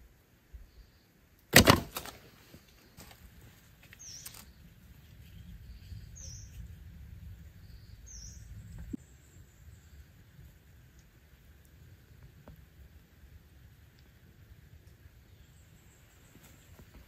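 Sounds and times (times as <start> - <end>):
faint bird chirps: 0.5 - 1.2, 3.9 - 10.5.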